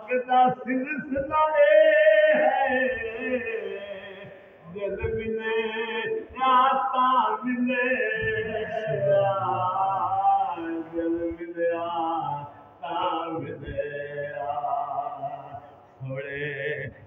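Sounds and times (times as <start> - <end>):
man singing unaccompanied: 0.0 - 17.0.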